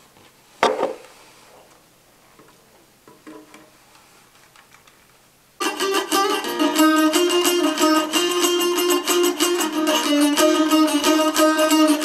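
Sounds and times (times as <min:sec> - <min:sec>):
lute plucked notes: 0:05.6 - 0:12.0.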